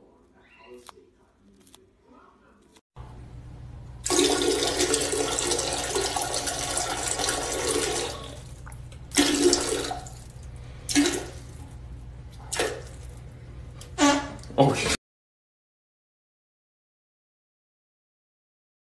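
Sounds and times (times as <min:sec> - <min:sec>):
toilet flushing: 0:04.0 - 0:11.5.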